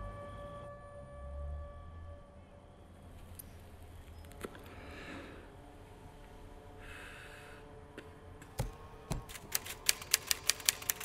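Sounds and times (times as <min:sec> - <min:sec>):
typewriter keys clacking: 0:08.6 - 0:11.0.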